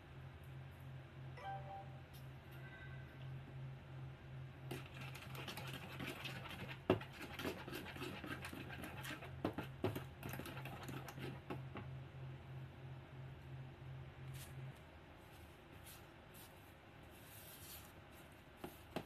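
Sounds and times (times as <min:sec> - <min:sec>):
spatula scraping batter in bowl: 0:04.7 - 0:11.5.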